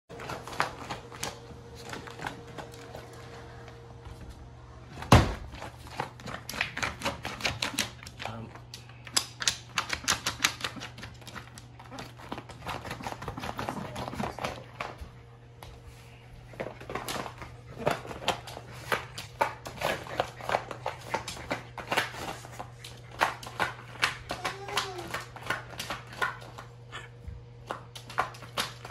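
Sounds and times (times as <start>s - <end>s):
dog claws scratching on plastic: 5.6s - 15.0s, 16.5s - 26.7s.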